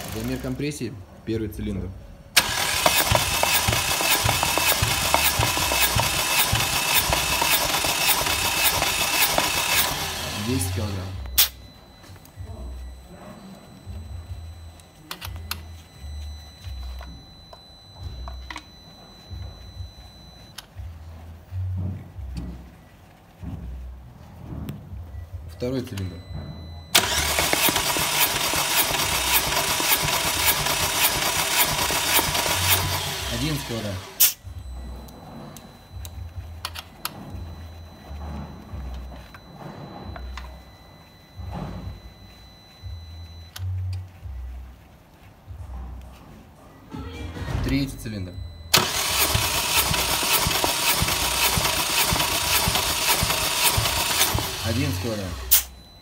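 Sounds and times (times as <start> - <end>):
engine cranking on starter: 0.0 - 0.6, 2.4 - 11.5, 26.9 - 34.4, 48.7 - 55.7.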